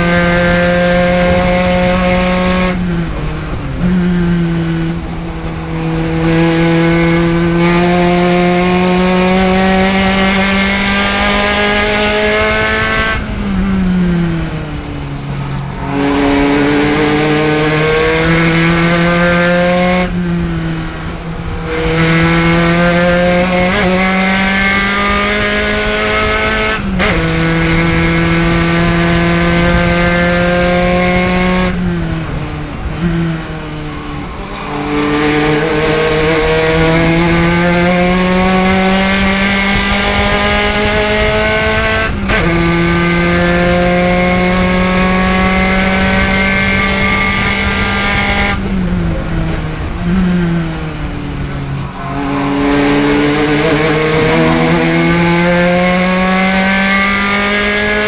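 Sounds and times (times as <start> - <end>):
racing car engine revving: 0.0 - 58.0.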